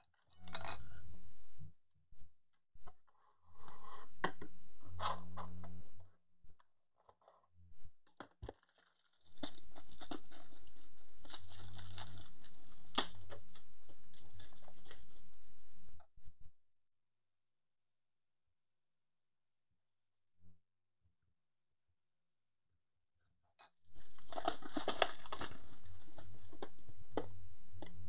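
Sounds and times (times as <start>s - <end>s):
plastic packaging rustling: 8.4s - 15.2s, 23.9s - 26.8s.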